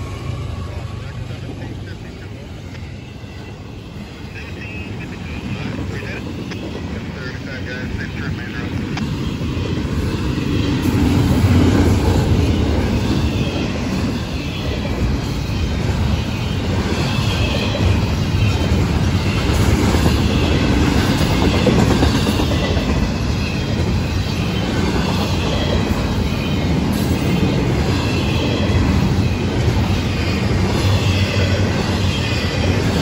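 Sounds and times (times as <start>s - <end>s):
freight train wheels rumbling: 0.0s - 33.0s
high wheel squeal: 22.3s - 33.0s.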